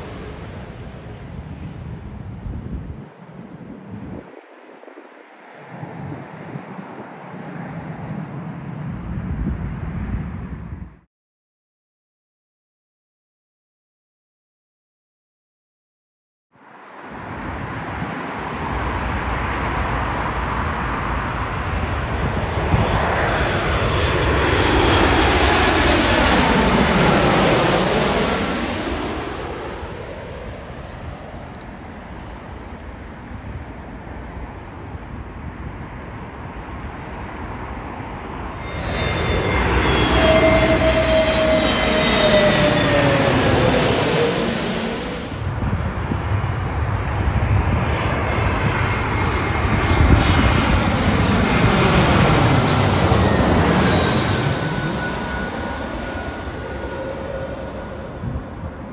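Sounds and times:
jet airliners passing overhead: 0.0 - 11.1, 16.6 - 58.9
jet engine whine falling in pitch: 16.9 - 58.9.

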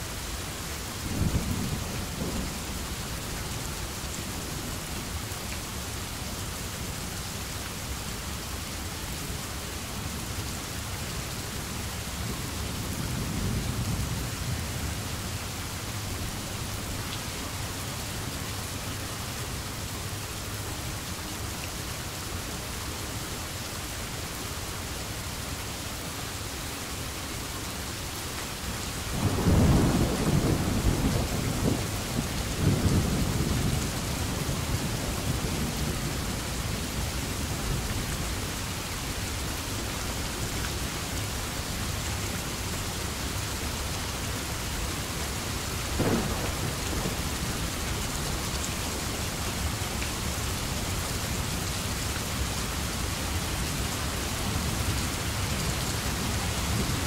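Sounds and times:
steady rain falling: 0.0 - 57.0
thunder rumbling: 46.0 - 48.3.

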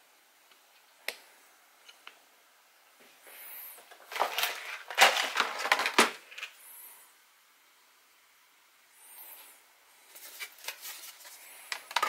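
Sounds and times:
crackling and rustling: 3.8 - 6.6, 10.0 - 12.0.

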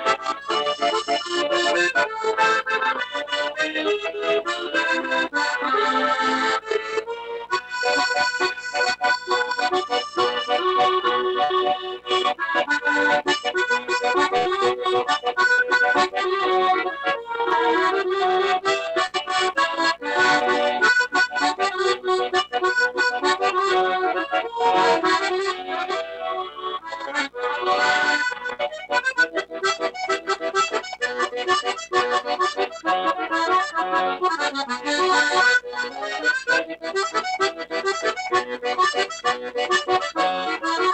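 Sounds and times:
accordion playing a tune: 0.0 - 40.9.

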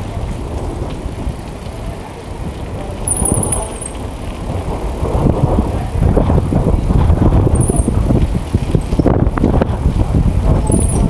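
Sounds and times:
bicycle tyres and frame rattling: 0.0 - 11.0
wind on microphone: 0.0 - 11.0.

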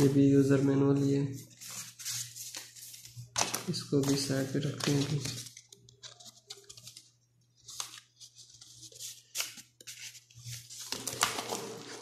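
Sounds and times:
paper and packaging rustling: 0.0 - 12.0.

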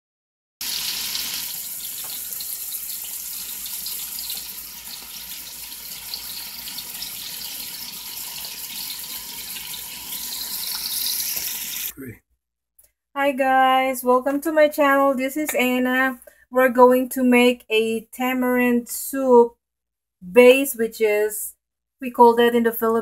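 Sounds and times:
chicken sizzling in oil: 0.6 - 11.9.

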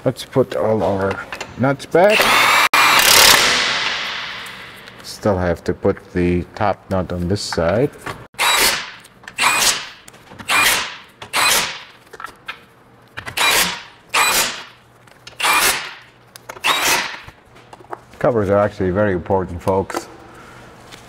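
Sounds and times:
power tool spurts: 2.1 - 4.6, 15.4 - 16.0, 16.6 - 17.2.

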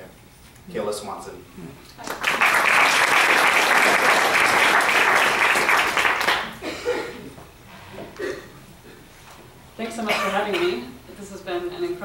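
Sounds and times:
audience applauding: 2.0 - 6.6.

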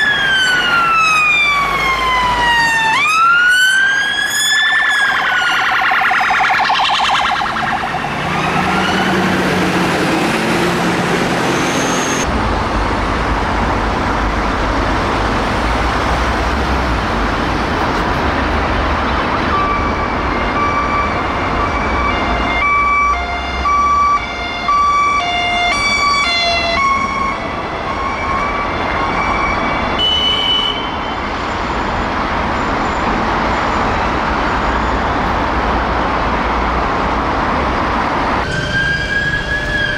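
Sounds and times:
ambulance siren alternating notes: 0.0 - 12.3, 19.3 - 31.4, 38.3 - 39.9
police sirens wailing: 0.0 - 12.3, 14.4 - 33.5, 34.1 - 39.9
road traffic: 0.0 - 39.9.

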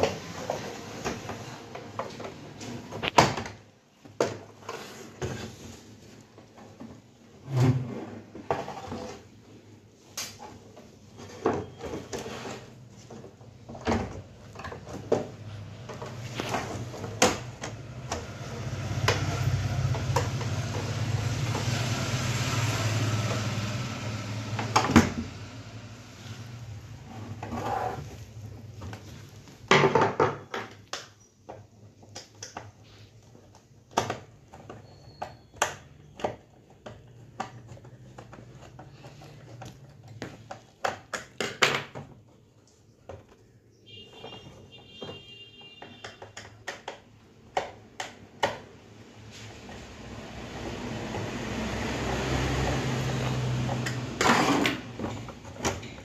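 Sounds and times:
plastic casing rubbing and scraping: 10.4 - 21.8.

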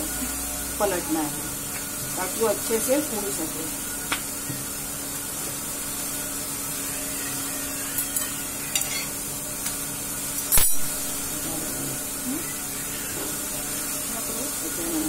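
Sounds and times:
gas burner hissing: 0.0 - 15.0
metal clack on griddle: 8.0 - 9.8, 10.4 - 10.9.

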